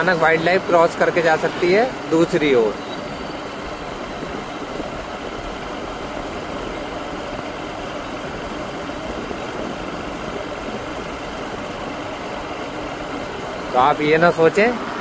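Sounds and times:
wind and road noise: 0.0 - 15.0.

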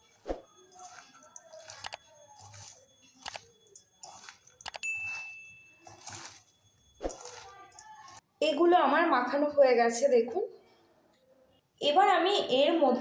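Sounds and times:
cabbage rustling in steel bowl: 0.0 - 3.3, 4.0 - 8.2
bell-like ding: 4.7 - 6.1.

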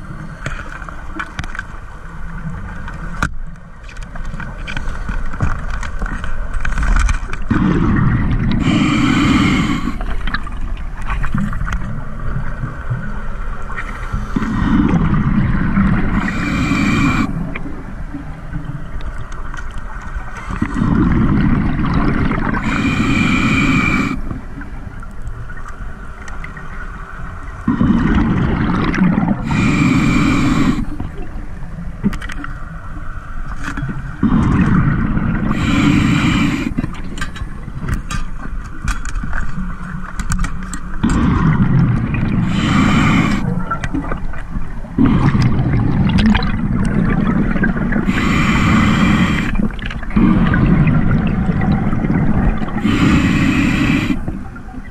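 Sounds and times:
exhaled bubbles gurgling: 7.4 - 25.6, 27.5 - 32.2, 33.8 - 38.0, 39.6 - 54.9
diver breathing through regulator: 7.5 - 10.4, 13.9 - 17.6, 22.4 - 24.4, 27.7 - 31.1, 34.2 - 37.0, 41.0 - 43.7, 45.0 - 45.8, 47.4 - 54.5.

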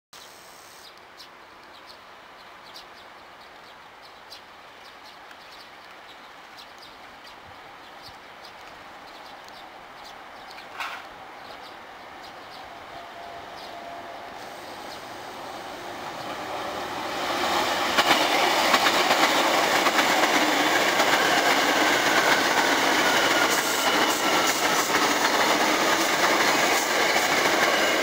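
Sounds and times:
small birds chirping: 0.2 - 28.0
electric train rumble: 11.2 - 28.0.

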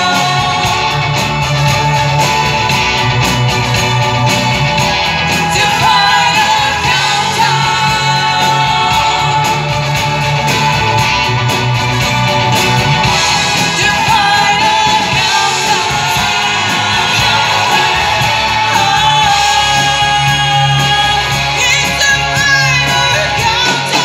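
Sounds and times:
person singing: 0.0 - 2.4, 5.3 - 10.6, 13.3 - 24.0
rock guitar: 0.0 - 24.0
steady bass line: 0.0 - 24.0.

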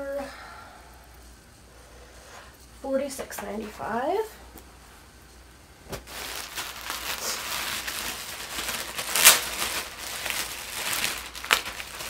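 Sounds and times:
plastic bags crinkling: 5.9 - 12.0.

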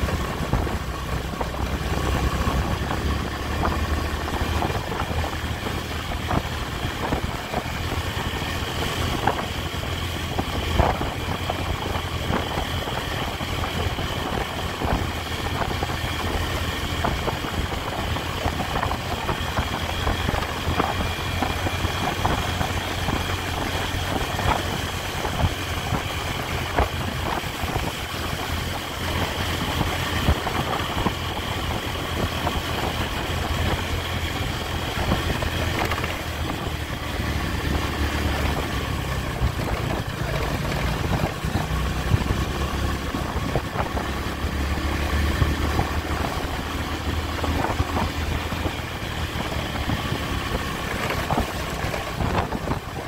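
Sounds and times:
motorcycle engine cruising: 0.0 - 53.0
wind and road noise: 0.0 - 53.0.

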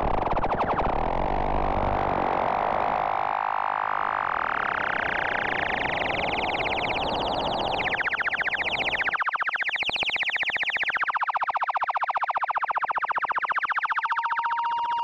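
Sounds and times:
rapidly pulsing synthesizer tone: 3.0 - 11.2.

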